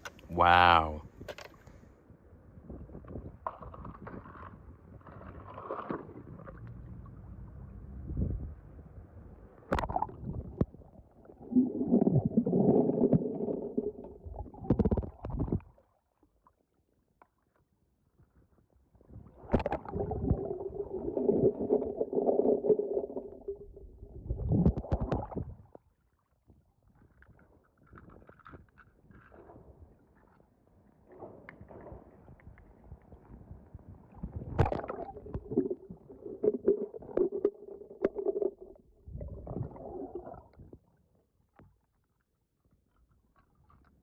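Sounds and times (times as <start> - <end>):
underwater gurgling and sloshing: 1.1 - 44.0.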